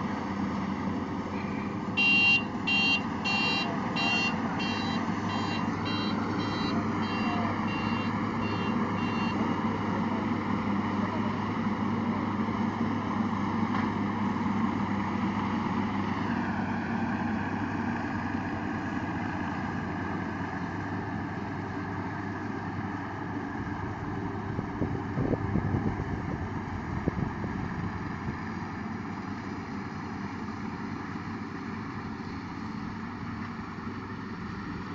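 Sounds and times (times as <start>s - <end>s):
combine harvester engine drone: 0.0s - 34.9s.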